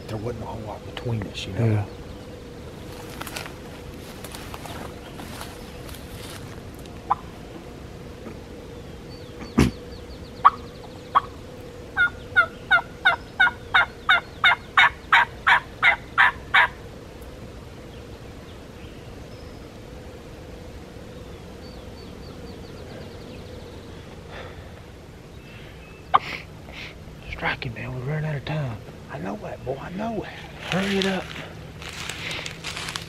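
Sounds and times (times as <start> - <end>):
turkey yelping: 11.2 - 11.4, 12.0 - 16.8.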